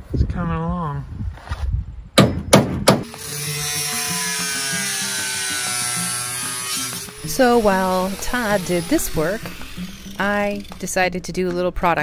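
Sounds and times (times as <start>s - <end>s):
knocks on sheet metal: 2.2s - 3.1s
power tool whining: 3.0s - 11.2s.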